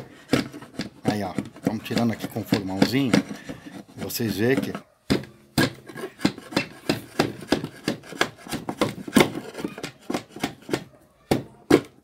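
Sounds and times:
chisel scraping wood: 0:00.0 - 0:04.9, 0:05.6 - 0:10.9.

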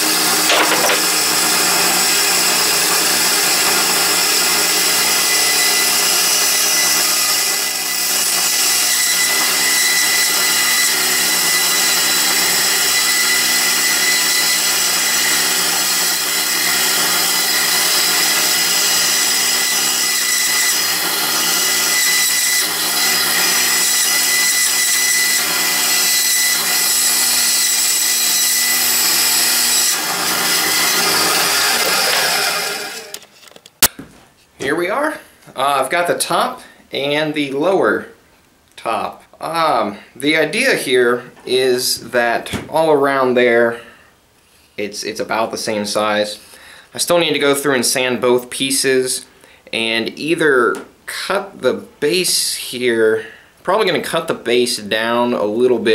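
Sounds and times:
band saw cutting wood: 0:00.0 - 0:33.3.

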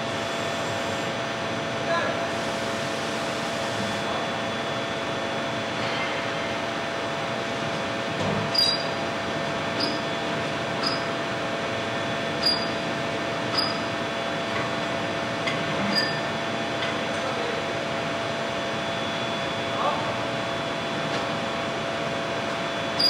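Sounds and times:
hydraulic press humming: 0:08.4 - 0:14.0.

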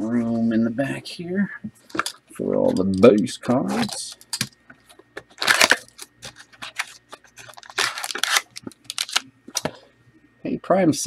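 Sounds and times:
card packaging rustling: 0:03.5 - 0:09.8.

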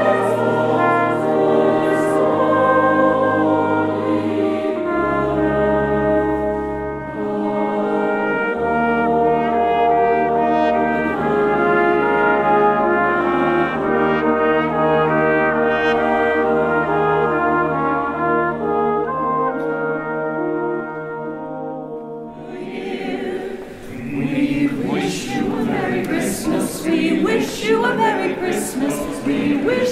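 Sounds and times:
brass ensemble playing chords: 0:00.0 - 0:23.9
deep tuba bass line: 0:04.8 - 0:22.3.

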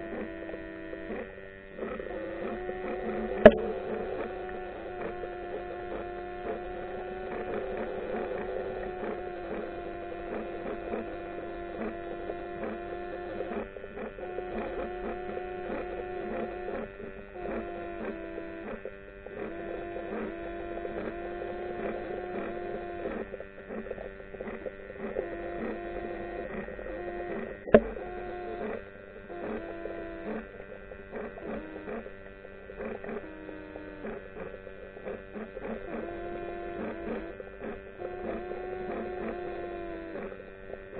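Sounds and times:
underwater wavering hum: 0:00.0 - 0:40.9
sharp click: 0:03.4 - 0:03.7.

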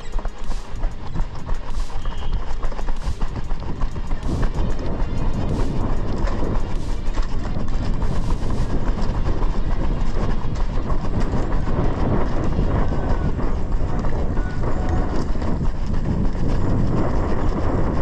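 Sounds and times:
low rumble on microphone: 0:00.0 - 0:18.0
running footsteps: 0:00.0 - 0:18.0.

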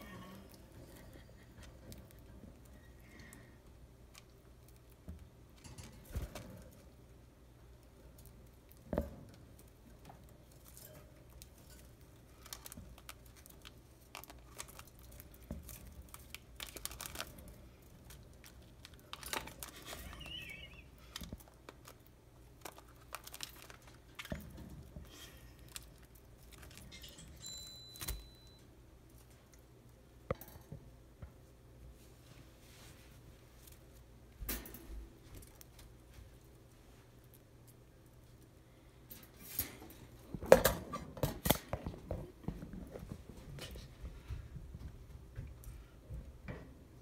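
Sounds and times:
budgies clicking and tapping: 0:19.9 - 0:21.0
high bird whistle: 0:20.0 - 0:20.9.

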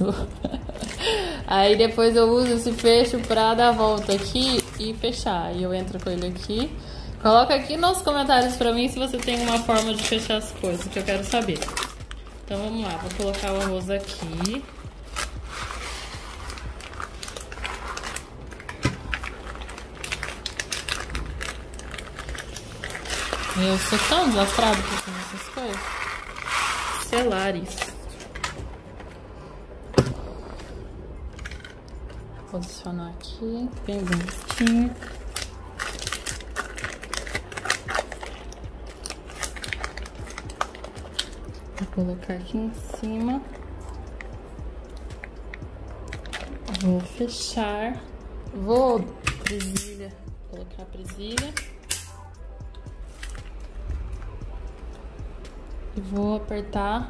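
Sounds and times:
plastic bag crinkling: 0:00.4 - 0:06.7, 0:08.0 - 0:28.5, 0:33.9 - 0:42.0.

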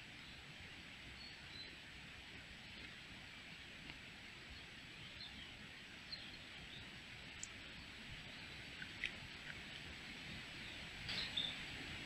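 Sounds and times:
steady hiss: 0:00.0 - 0:12.0
faint high bird chirps: 0:10.6 - 0:11.7.

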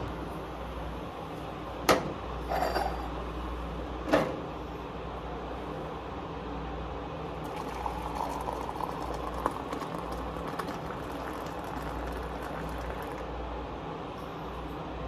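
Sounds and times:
coffee pouring into a ceramic mug: 0:07.4 - 0:13.4.

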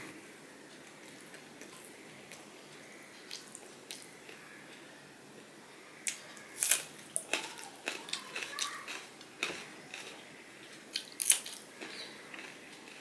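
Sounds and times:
crunching raw vegetable: 0:06.0 - 0:10.2, 0:10.9 - 0:13.0
wet chewing: 0:06.1 - 0:10.2.

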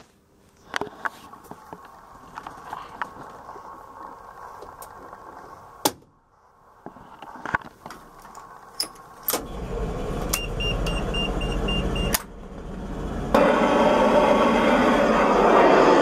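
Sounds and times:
trolleybus machinery running: 0:08.2 - 0:16.0.

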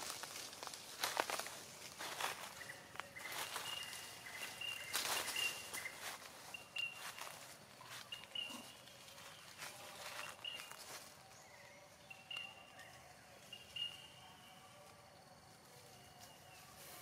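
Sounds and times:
dry leaves rustling and crunching: 0:00.0 - 0:14.2
monkeys chirping: 0:02.4 - 0:10.9.

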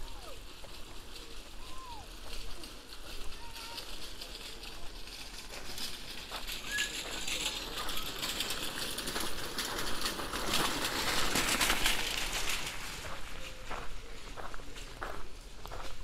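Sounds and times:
footsteps crunching on gravel: 0:00.0 - 0:16.0.

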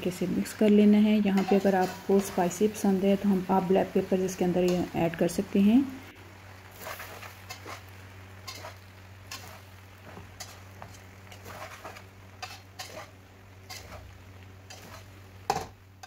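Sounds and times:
metal spatula scraping a pan: 0:01.3 - 0:02.6, 0:06.7 - 0:15.7.

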